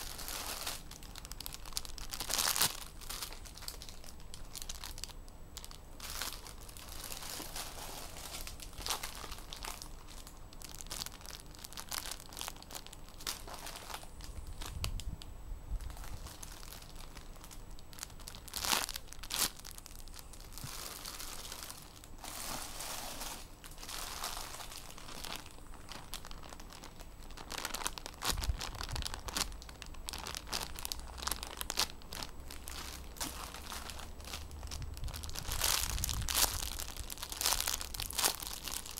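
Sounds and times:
plastic bags rustling: 0.0 - 15.2, 15.8 - 38.9.

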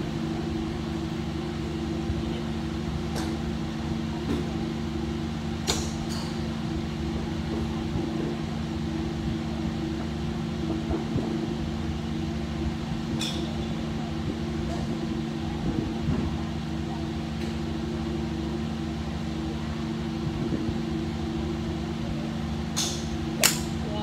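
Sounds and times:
steady mechanical hum: 0.0 - 24.0
golf club striking ball: 5.6 - 6.4, 22.7 - 23.8.

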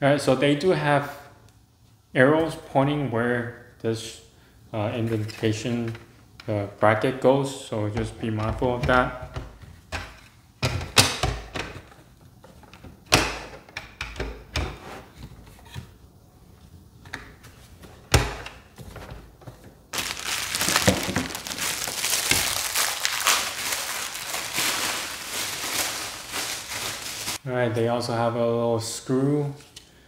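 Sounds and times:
plastic bag crinkling: 19.9 - 27.4.

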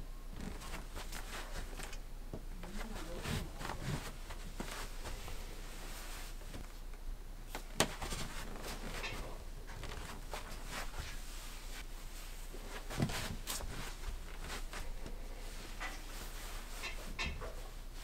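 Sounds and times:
low steady hum: 0.0 - 18.0
knit fabric rustling on wood: 2.6 - 6.7, 7.8 - 18.0.

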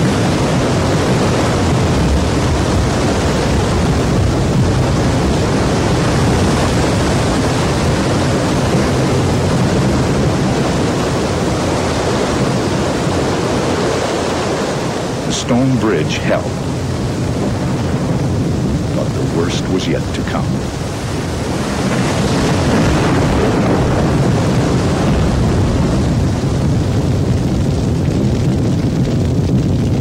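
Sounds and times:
floodwater rushing: 0.0 - 27.8.

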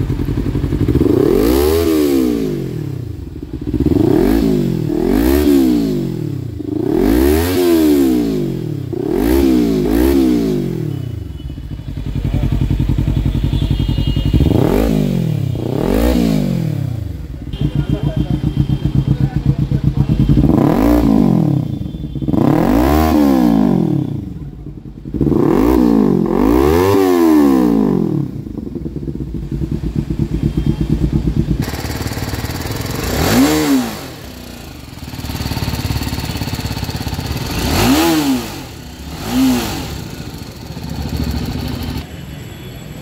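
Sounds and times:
single-cylinder motorcycle idling: 0.0 - 1.2, 11.2 - 14.6, 17.0 - 20.6, 28.4 - 42.2
motorcycle engine revving: 0.0 - 42.2.

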